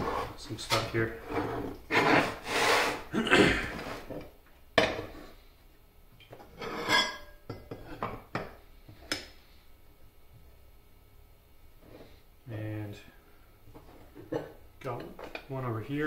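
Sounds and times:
metal plates clinking and scraping: 0:06.4 - 0:07.9.

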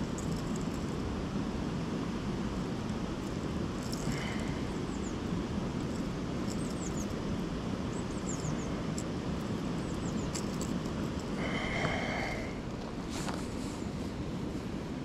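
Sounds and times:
low outdoor rumble: 0:00.0 - 0:15.0
small birds chirping: 0:03.8 - 0:10.8.

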